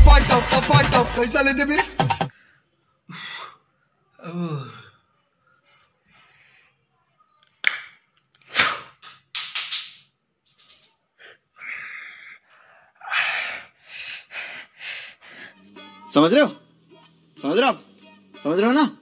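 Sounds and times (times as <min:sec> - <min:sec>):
music: 0:00.0 - 0:02.3, 0:15.4 - 0:19.0
man breathing and gasping: 0:02.3 - 0:03.7, 0:11.2 - 0:15.6.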